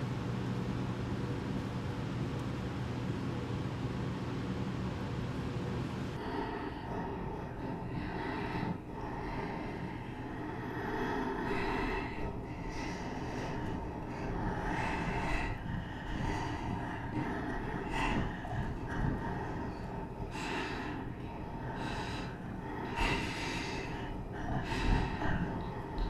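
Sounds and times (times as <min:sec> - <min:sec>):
low steady rumble: 0:00.0 - 0:26.0
heavy gasping breaths: 0:06.2 - 0:26.0.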